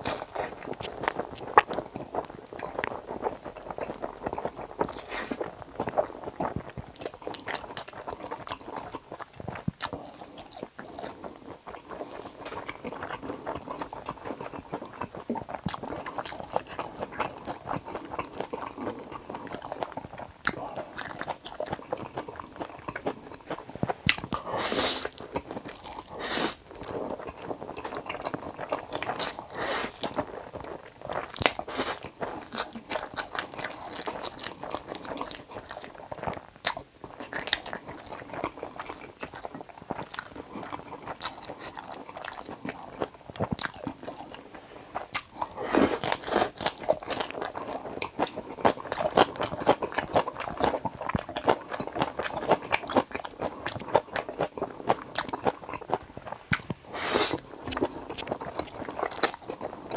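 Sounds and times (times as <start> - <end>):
wet chewing and crunching: 0.0 - 59.9
man slurping noodles: 24.4 - 25.1, 26.2 - 26.6, 29.2 - 30.0, 45.6 - 46.5, 56.9 - 57.4.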